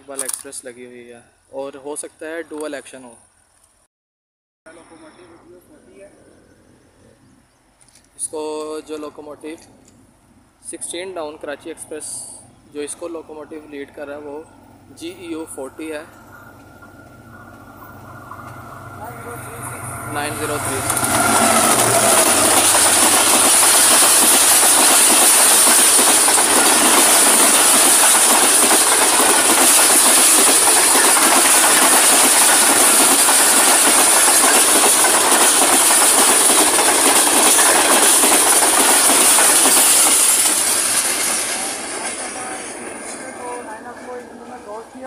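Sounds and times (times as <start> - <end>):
high whine: 13.3 - 31.9
train wheels rushing on rails: 13.8 - 45.0.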